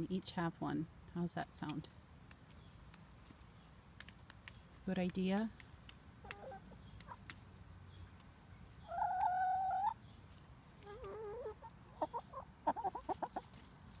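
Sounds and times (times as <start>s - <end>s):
hens calling: 6.2s - 7.3s, 8.6s - 13.6s
hens clucking: 6.2s - 7.4s, 8.7s - 13.6s.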